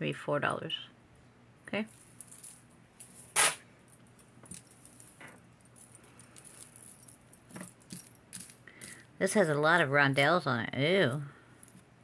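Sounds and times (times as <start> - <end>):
metal jewelry chains jangling: 1.9 - 9.1.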